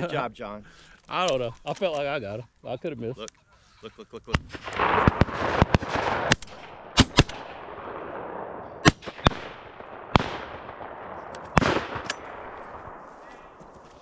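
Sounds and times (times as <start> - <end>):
shotgun shots with echo: 4.4 - 13.1.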